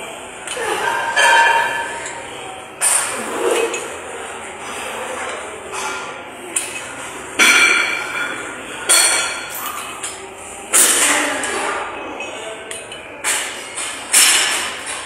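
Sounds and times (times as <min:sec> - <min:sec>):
metal gym weights clanking: 0:00.5 - 0:04.0.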